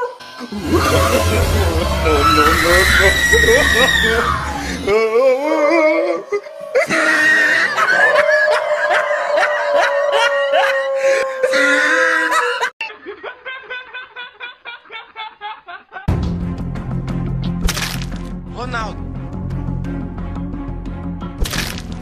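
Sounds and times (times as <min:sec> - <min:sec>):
person laughing: 0:00.5 - 0:03.0, 0:11.8 - 0:16.1.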